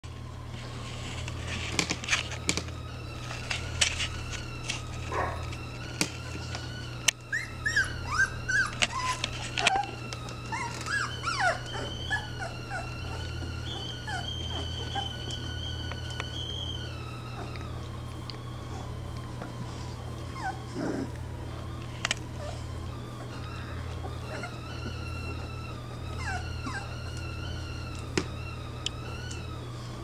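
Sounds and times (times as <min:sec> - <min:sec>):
puppies whimpering: 0:00.1 - 0:30.0.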